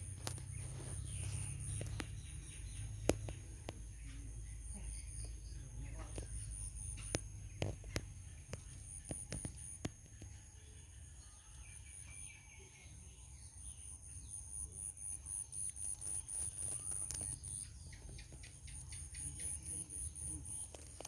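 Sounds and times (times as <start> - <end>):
sharp clicks: 6.1 - 10.2.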